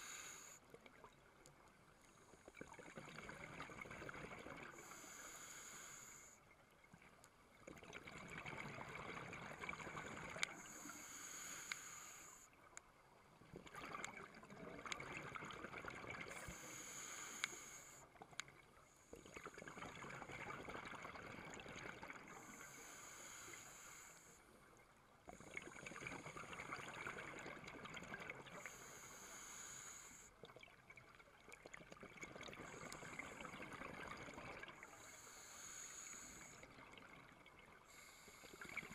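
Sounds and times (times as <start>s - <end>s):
scuba regulator hissing inhale: 0.0s - 0.6s, 4.6s - 6.4s, 10.5s - 12.6s, 16.3s - 18.1s, 22.3s - 24.6s, 28.5s - 30.4s, 34.8s - 36.8s, 37.8s - 38.9s
exhaled bubbles burbling underwater: 2.5s - 4.8s, 7.6s - 10.6s, 13.4s - 16.5s, 19.2s - 22.5s, 25.3s - 28.6s, 30.4s - 35.0s.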